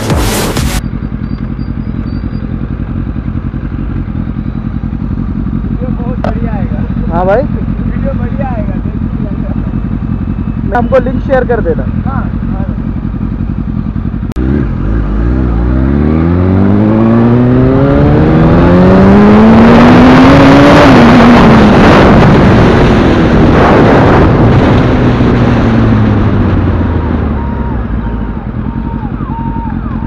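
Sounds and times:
motorcycle engine accelerating: 0.0 - 30.0
wind rushing over microphone: 16.6 - 29.1.

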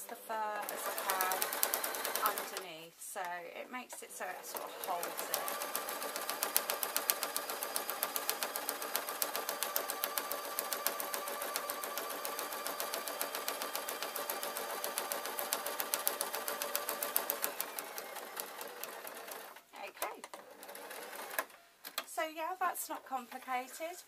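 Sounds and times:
sewing machine motor whine: 0.1 - 2.7, 4.2 - 19.6
sewing needle ticks: 0.6 - 2.7.

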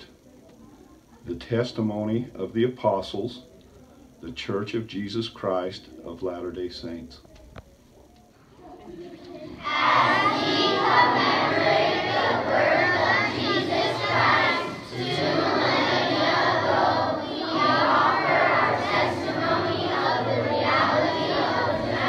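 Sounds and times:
children reciting in unison: 8.5 - 22.0.

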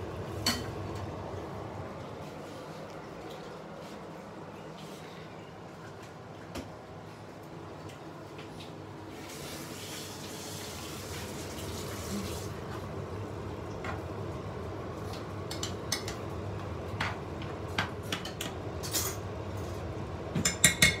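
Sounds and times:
kitchen tap running: 9.1 - 12.9.

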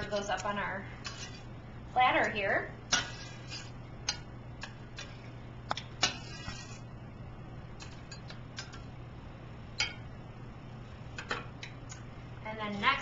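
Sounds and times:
low steady hum: 0.0 - 13.0
spatula scraping: 1.0 - 1.6, 2.9 - 6.9.

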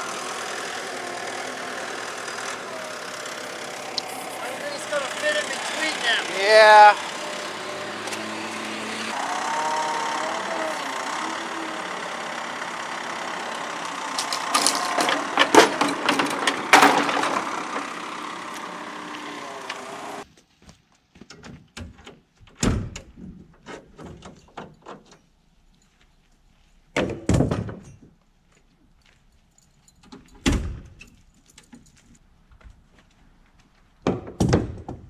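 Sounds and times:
vehicle engine running: 0.0 - 20.2
loud clattering knocks: 14.2 - 17.9.

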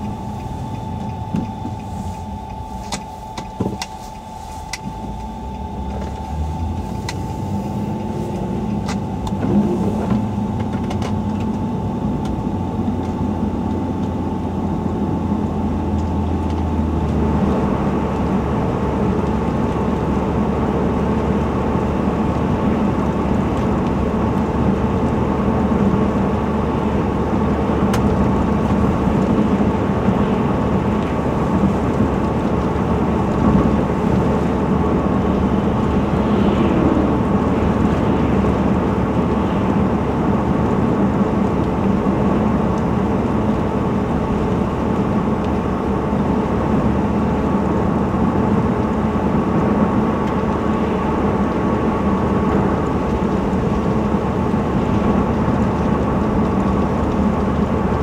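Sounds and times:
thin steady tone: 0.0 - 12.8
car engine hum: 0.0 - 58.0.

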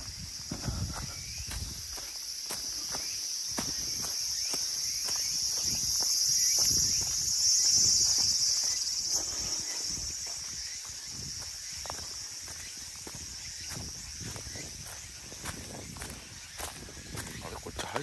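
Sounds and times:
insects shrilling: 0.0 - 18.0
footsteps: 0.4 - 18.0.

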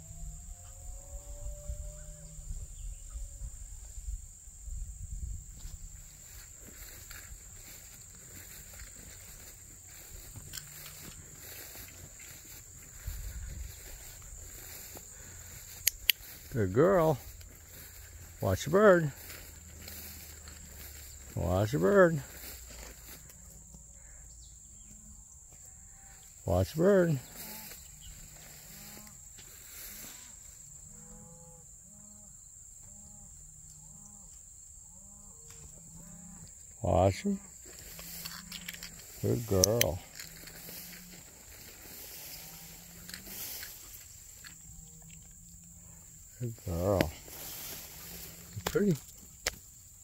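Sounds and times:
low rumble on microphone: 0.0 - 16.6
insects droning: 0.0 - 50.0.

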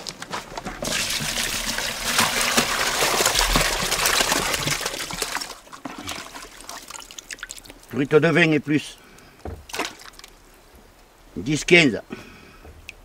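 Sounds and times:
net splashing and knocking in bucket: 0.6 - 7.8, 9.4 - 10.4
water pouring into plastic bucket: 0.8 - 7.9, 9.7 - 10.3.

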